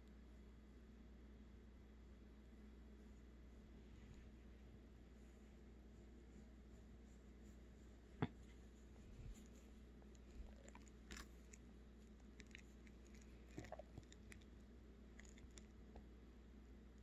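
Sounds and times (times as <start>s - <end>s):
soft rustles: 3.0s - 13.5s.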